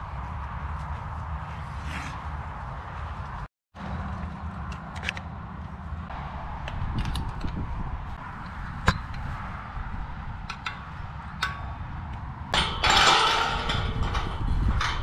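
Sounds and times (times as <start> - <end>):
wind rumble on microphone: 5.4 - 15.0.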